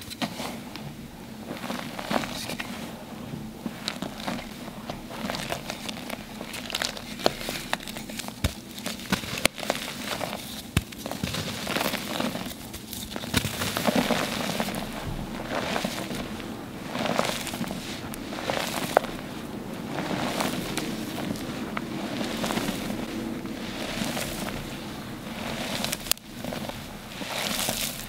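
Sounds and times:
hands squeezing wet chalk: 3.7 - 28.0
chalk chunks snapping: 5.4 - 16.3, 23.8 - 28.0.

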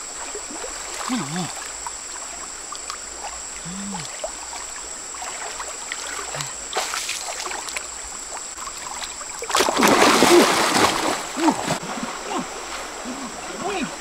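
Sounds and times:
water sloshing and splashing: 0.0 - 14.0
heavy splashing: 8.8 - 14.0.

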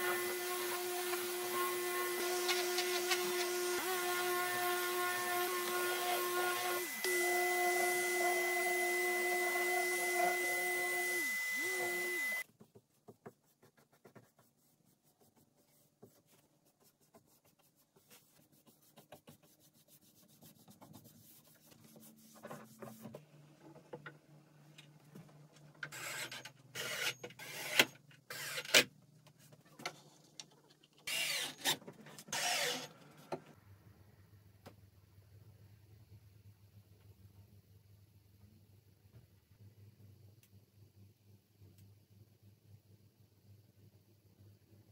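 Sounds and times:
orbital sander whining: 0.0 - 12.4
rubbing and scraping on wood: 0.4 - 6.6, 12.5 - 23.2.

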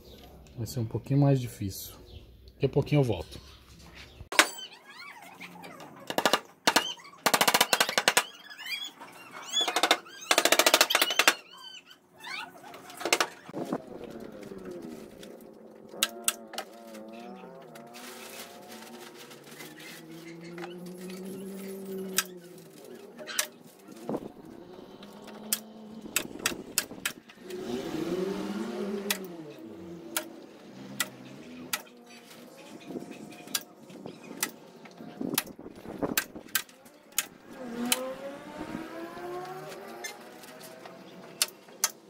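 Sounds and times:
hammer nailing wood: 6.1 - 8.3, 9.7 - 11.4
vehicle engine passing: 13.5 - 42.0.

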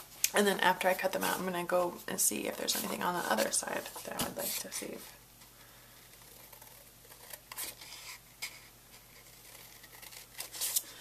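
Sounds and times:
scissors snipping paper: 9.0 - 10.8.

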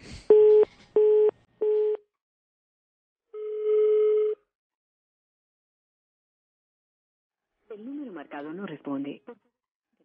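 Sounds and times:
long telephone tone: 3.3 - 4.5.

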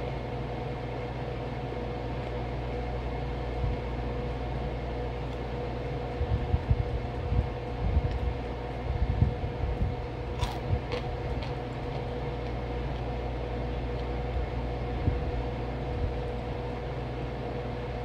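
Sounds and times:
low machine hum: 0.0 - 18.0
crunchy chewing: 1.8 - 9.0, 9.8 - 16.7.

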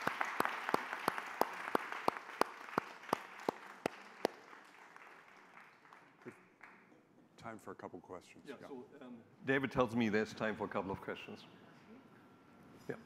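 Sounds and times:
audience applauding: 0.0 - 6.9
evenly spaced claps: 0.0 - 6.9.

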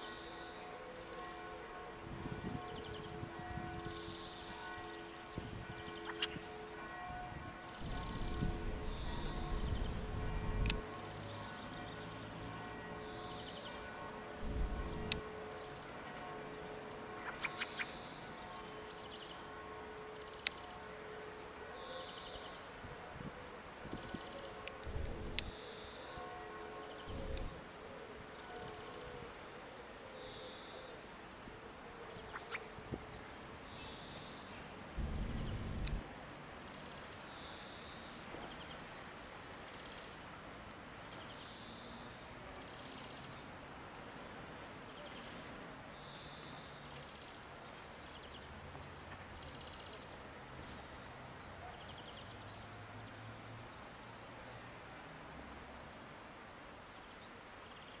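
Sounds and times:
small birds calling: 7.8 - 10.8, 14.4 - 15.2, 24.8 - 25.5, 27.1 - 27.5, 35.0 - 36.0
low rumble: 35.0 - 36.0.

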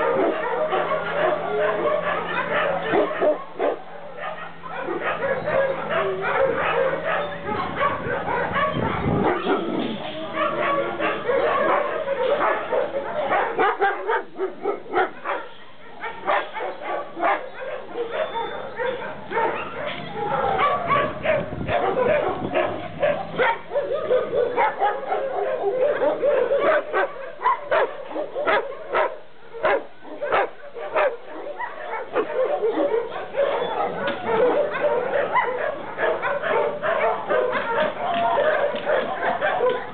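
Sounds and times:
dogs barking: 0.0 - 39.9.

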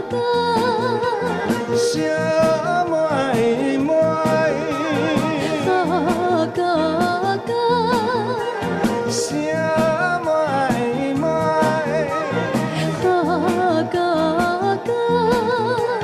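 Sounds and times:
band accompaniment with steady beat: 0.0 - 16.0
woman singing: 0.0 - 16.0
man singing: 1.7 - 6.7, 8.8 - 14.9.

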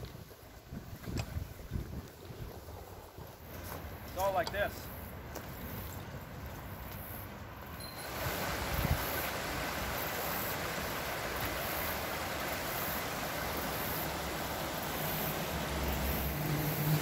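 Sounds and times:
water rushing over rocks: 7.8 - 17.0.

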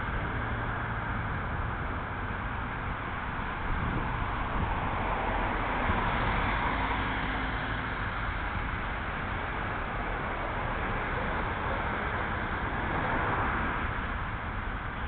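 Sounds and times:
wind on microphone: 3.1 - 6.6.

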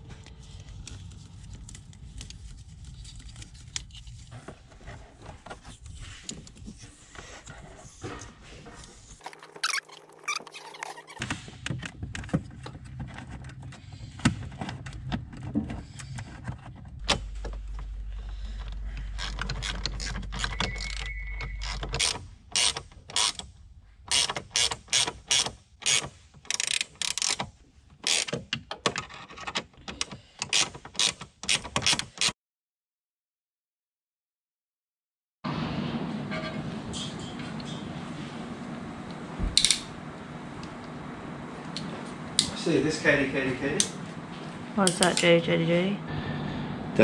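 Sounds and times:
low steady hum: 11.8 - 24.0
ratchet wrench clicking: 24.1 - 27.4.

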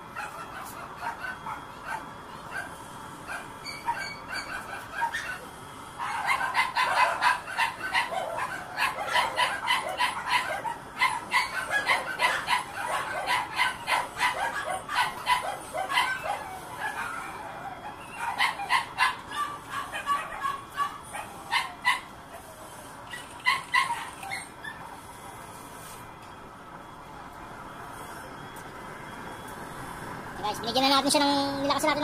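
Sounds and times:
dog yipping barks: 3.3 - 5.4, 6.0 - 22.4, 23.1 - 24.8.

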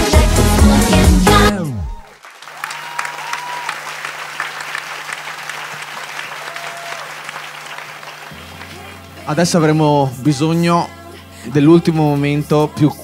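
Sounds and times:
dance music slowing to a stop: 0.0 - 2.1, 8.0 - 12.8
audience applauding: 1.8 - 9.0.

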